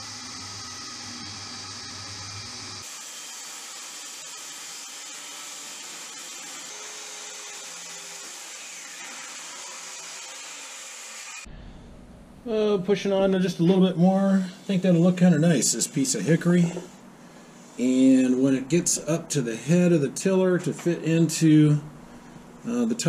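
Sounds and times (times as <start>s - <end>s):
circular saw ripping wood: 0.0s - 11.5s.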